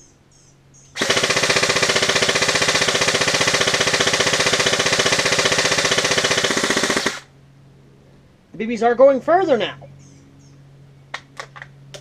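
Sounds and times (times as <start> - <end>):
airsoft rifle shots rattling: 1.0 - 7.3.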